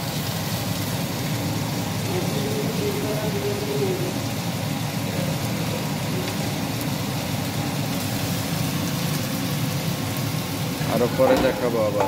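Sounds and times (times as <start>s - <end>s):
gas stove hum and hiss: 0.0s - 12.0s.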